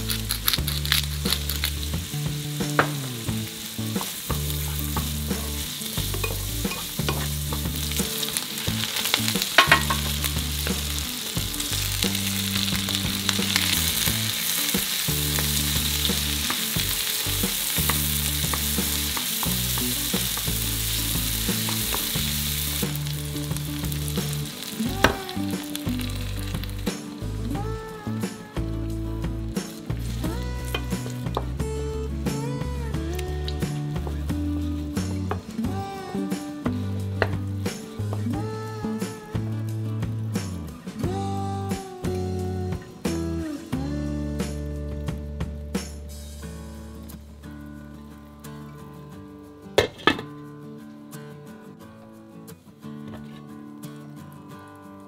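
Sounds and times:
food sizzling in frying pan: 0:00.0 - 0:31.5.

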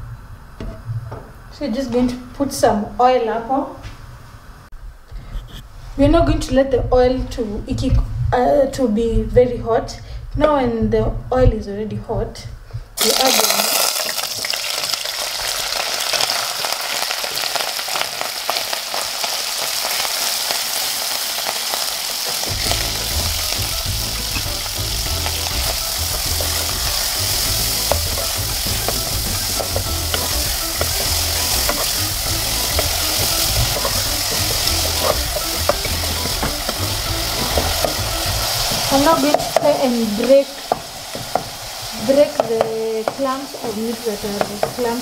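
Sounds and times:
meat sizzling in oil: 0:13.0 - 0:45.0
wooden spoon scraping pot: 0:24.2 - 0:41.5.

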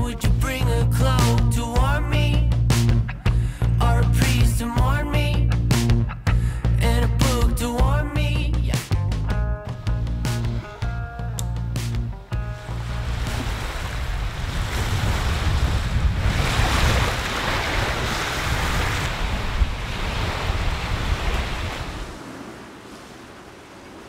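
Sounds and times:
strong wind buffeting microphone: 0:12.5 - 0:24.0
waves washing on shore: 0:12.6 - 0:24.0.

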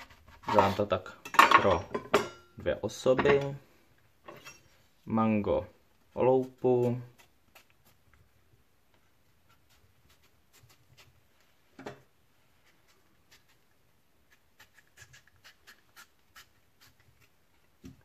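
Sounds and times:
knife scraping mango skin: 0:06.4 - 0:08.0, 0:09.4 - 0:11.2, 0:12.6 - 0:17.6.

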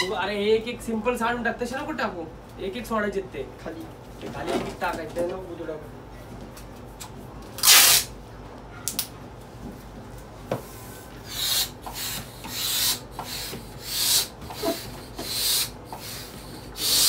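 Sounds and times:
rubber balloons rubbing: 0:11.2 - 0:17.0.

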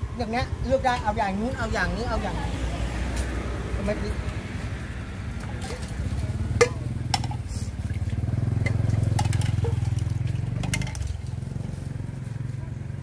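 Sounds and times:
engine pulsing hum: 0:00.0 - 0:13.0
spoons clinking against bowls: 0:08.7 - 0:11.1.

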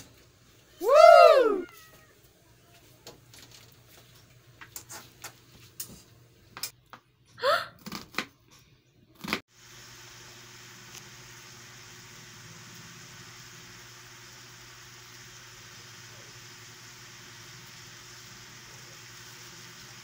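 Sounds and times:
short high cry: 0:00.8 - 0:02.1
meat sizzling in oil: 0:09.5 - 0:20.0.

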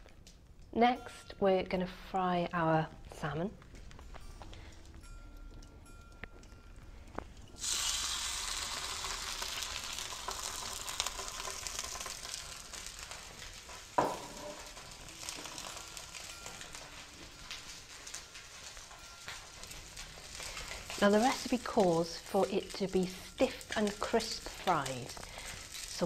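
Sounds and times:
fish sizzling in a frying pan: 0:07.6 - 0:19.0, 0:19.6 - 0:26.0.

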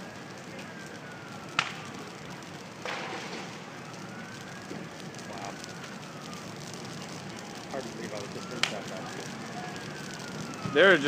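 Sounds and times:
distant siren wailing: 0:00.0 - 0:11.0
fire crackling: 0:00.0 - 0:11.0
sharp pop: 0:01.6 - 0:01.8, 0:02.8 - 0:03.5.

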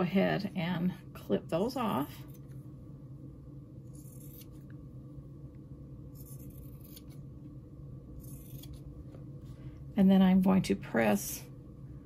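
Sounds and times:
low steady hum: 0:00.0 - 0:12.0
scissors snipping fabric: 0:06.2 - 0:07.2, 0:08.2 - 0:08.8.

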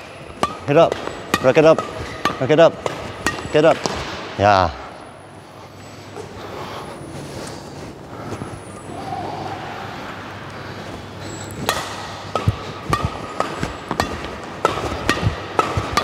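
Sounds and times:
rackets hitting shuttlecock: 0:00.0 - 0:04.4, 0:11.3 - 0:16.0
steady low hum: 0:00.0 - 0:16.0.

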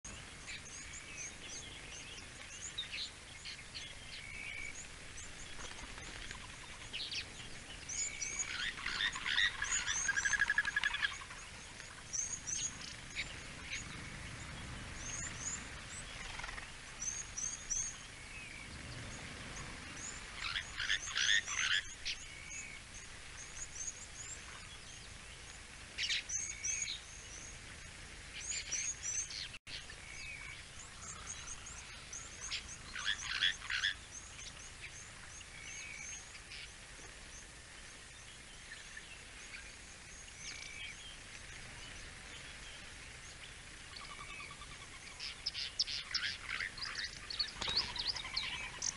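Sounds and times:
birds chirping: 0:00.0 - 0:48.9
rapid chattering bird calls: 0:03.8 - 0:14.2, 0:15.0 - 0:22.8, 0:30.1 - 0:36.7, 0:43.9 - 0:48.9.

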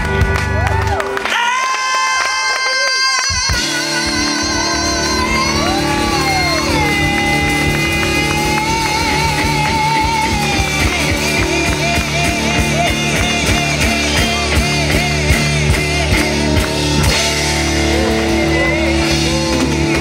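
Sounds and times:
live rock band playing: 0:00.0 - 0:20.0
drum beat: 0:03.3 - 0:20.0
sliding bent guitar lead: 0:03.6 - 0:20.0.

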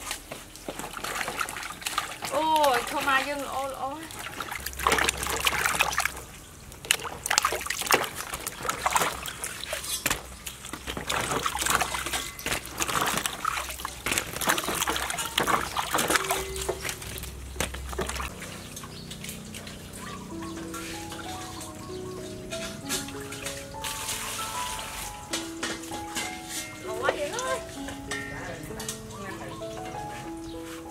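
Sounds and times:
water splashing in metal basin: 0:00.0 - 0:30.3
music: 0:19.8 - 0:30.9.

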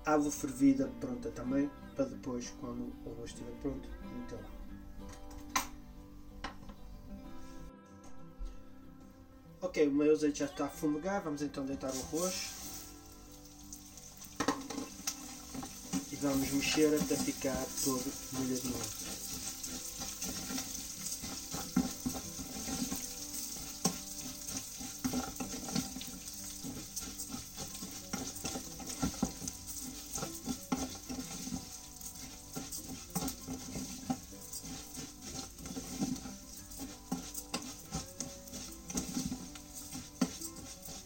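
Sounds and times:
rice sizzling in oil: 0:11.8 - 0:41.0
spatula scraping pan: 0:11.8 - 0:41.0.

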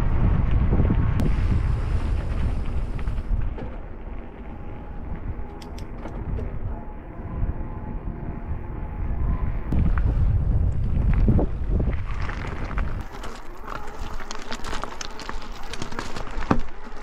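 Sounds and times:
wind buffeting microphone: 0:00.0 - 0:13.3.

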